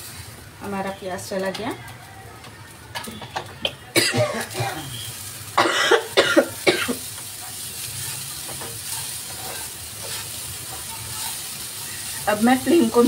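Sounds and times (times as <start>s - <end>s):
food sizzling in frying pan: 0.0s - 13.0s
person coughing: 4.0s - 4.9s, 5.6s - 7.0s
spatula stirring in pan: 4.4s - 13.0s.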